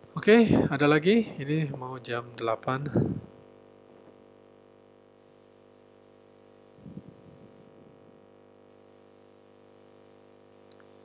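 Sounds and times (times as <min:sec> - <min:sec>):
low hum: 0:05.2 - 0:11.0.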